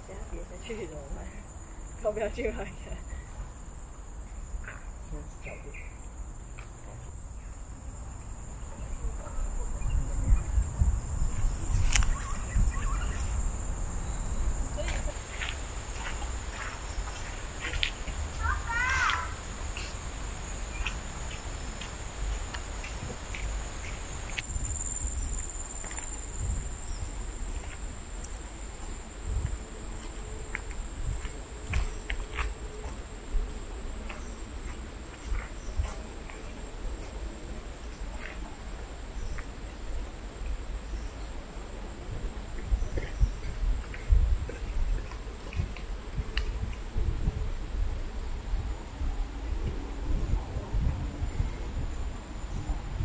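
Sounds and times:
insects droning: 0.0s - 53.0s
footsteps on dirt trail: 9.9s - 37.2s.

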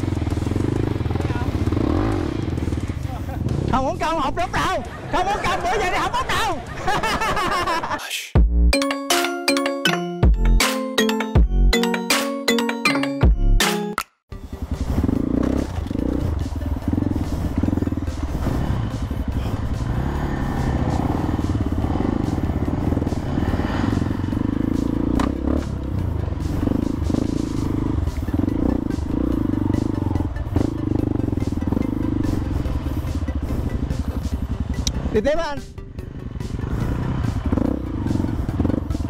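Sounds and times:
dirt bike engine revving: 0.0s - 4.3s, 14.4s - 39.0s.

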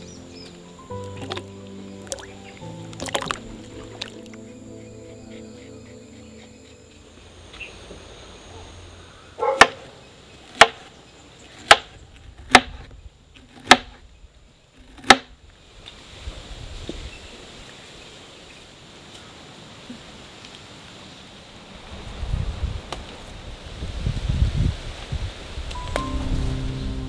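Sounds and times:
sharp chopping strikes: 9.5s - 9.9s, 10.5s - 10.9s, 11.6s - 12.9s, 13.5s - 14.0s, 14.9s - 15.3s.

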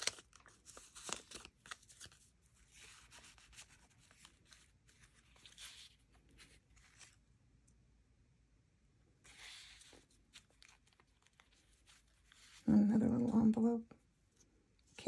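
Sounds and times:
paper rustling: 0.0s - 7.2s, 9.2s - 12.8s.

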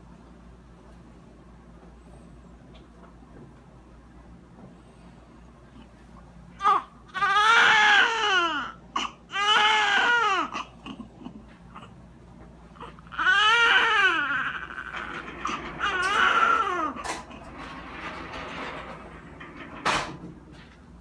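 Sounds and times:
newborn baby crying: 6.6s - 11.9s, 12.8s - 17.0s.

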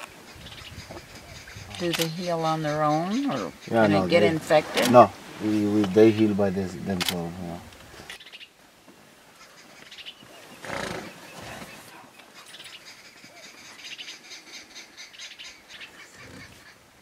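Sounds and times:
hippopotamus snorting: 10.6s - 12.0s, 16.0s - 16.8s.

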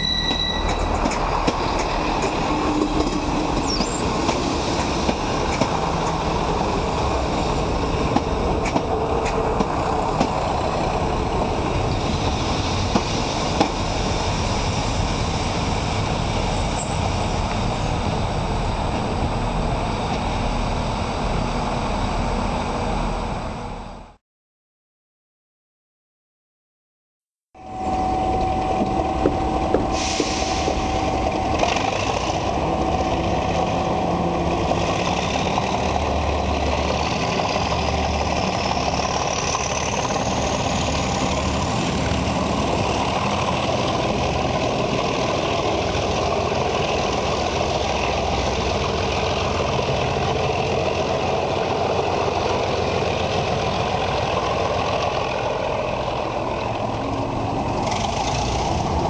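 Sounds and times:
diesel train engine running: 0.0s - 24.2s, 27.6s - 59.0s
rising engine whine: 27.6s - 36.8s.

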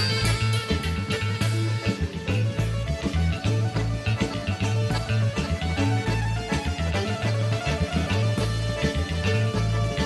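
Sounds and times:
accordion: 0.0s - 10.0s
driving bass line: 0.0s - 10.0s
electric guitar: 0.0s - 10.0s
live band playing upbeat music: 0.0s - 10.0s.

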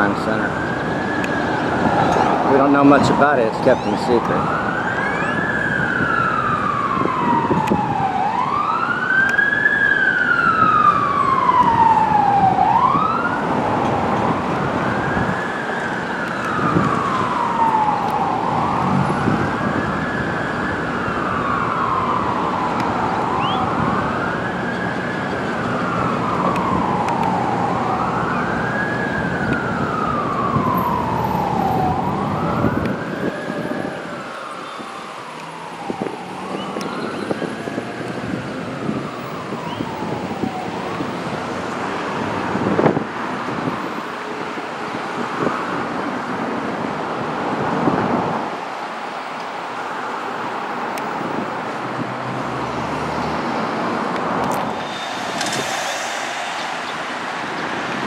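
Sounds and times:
siren wailing: 0.0s - 41.8s, 53.5s - 58.0s
city traffic rumble: 0.0s - 58.0s.

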